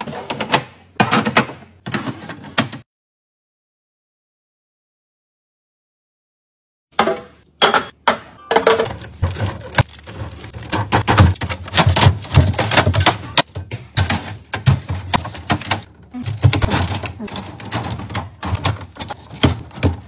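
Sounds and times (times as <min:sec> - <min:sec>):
cans and bottles clicking and knocking: 0:07.0 - 0:20.0.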